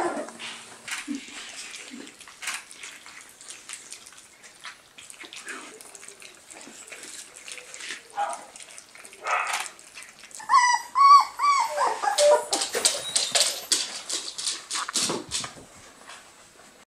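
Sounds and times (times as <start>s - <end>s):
puppy whimpering: 0.0s - 0.4s, 10.2s - 13.8s
puppy high whines: 10.4s - 13.8s.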